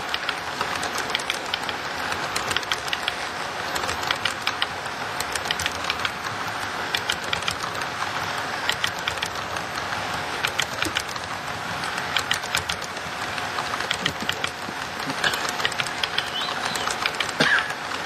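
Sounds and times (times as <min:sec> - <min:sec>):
model freight cars rumbling: 0:00.0 - 0:18.0
wheels clicking over rail joints: 0:00.0 - 0:18.0.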